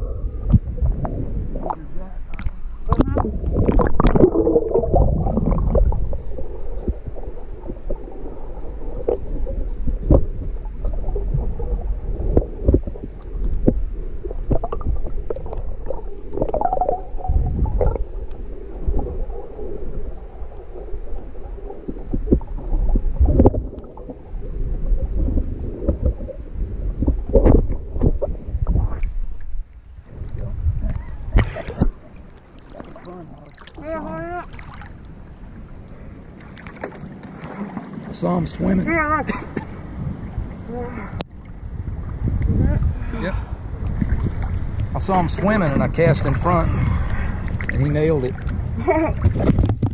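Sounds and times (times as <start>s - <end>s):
underwater rumbling and gurgling: 0.0s - 49.9s
small underwater clicks: 0.5s - 4.4s, 47.0s - 49.9s.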